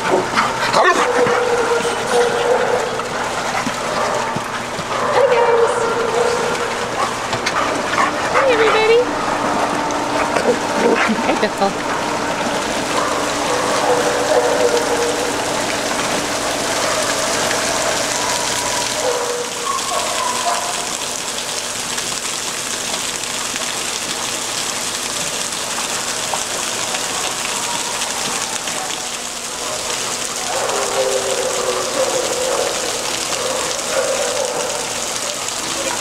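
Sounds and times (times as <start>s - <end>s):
dogs splashing through water: 0.0s - 36.0s
water jets spraying: 0.0s - 36.0s.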